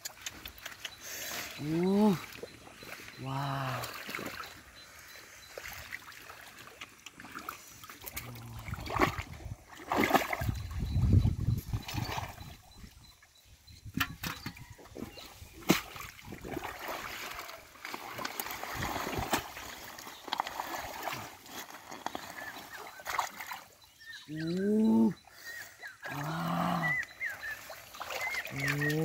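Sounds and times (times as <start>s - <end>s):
small splashes and clicks: 0.0s - 1.0s, 3.8s - 4.6s, 5.5s - 10.6s, 15.6s - 23.7s, 27.6s - 29.0s
hands splashing in muddy water: 0.0s - 4.6s, 5.5s - 10.7s, 15.0s - 23.7s, 26.8s - 29.0s
drawn-out rising and falling calls: 23.8s - 29.0s.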